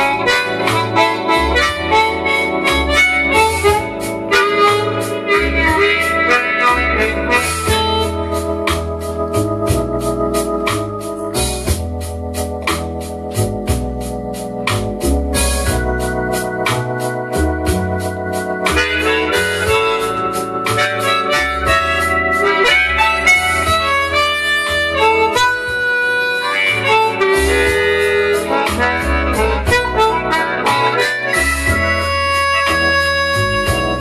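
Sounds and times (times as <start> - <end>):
blues backing track: 0.0 - 34.0
blues harmonica: 0.0 - 34.0.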